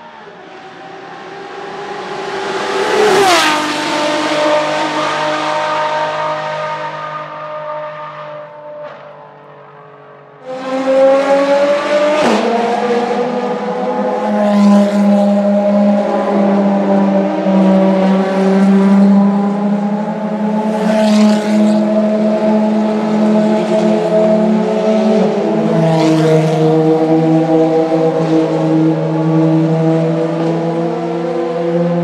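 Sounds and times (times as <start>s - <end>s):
race car engines droning: 0.0s - 32.0s.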